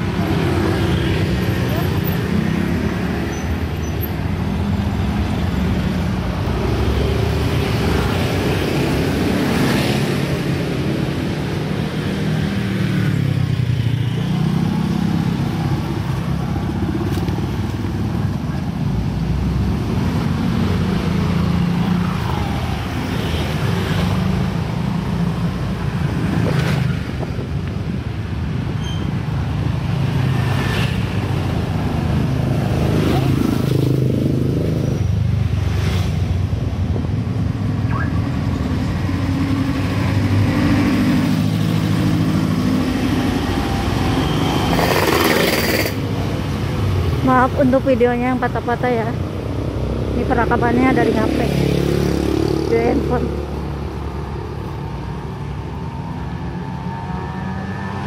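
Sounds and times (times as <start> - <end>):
motorbikes and cars passing: 0.0 - 58.0.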